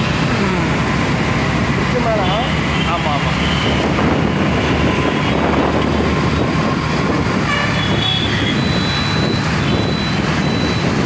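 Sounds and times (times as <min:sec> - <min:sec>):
wind and road noise: 0:00.0 - 0:11.0
vehicle horn tooting: 0:07.4 - 0:09.9.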